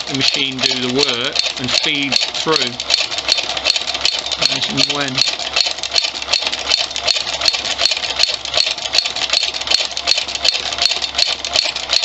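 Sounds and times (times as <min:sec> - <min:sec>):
sewing machine running: 0:00.0 - 0:12.0
sewing machine stitch clicks: 0:00.0 - 0:12.0.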